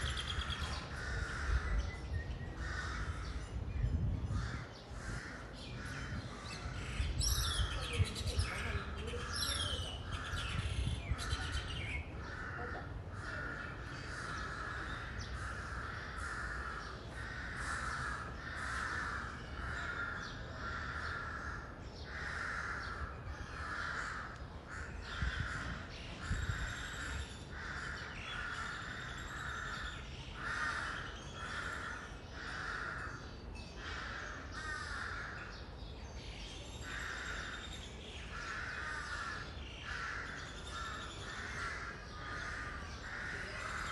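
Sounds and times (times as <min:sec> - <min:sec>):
crows cawing: 0:00.0 - 0:01.9, 0:02.6 - 0:03.5, 0:12.2 - 0:35.6, 0:36.8 - 0:43.9.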